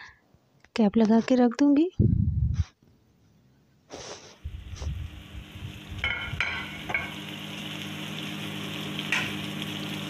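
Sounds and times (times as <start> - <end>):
food sizzling in a pan: 3.9 - 10.0
steady low hum: 4.4 - 10.0.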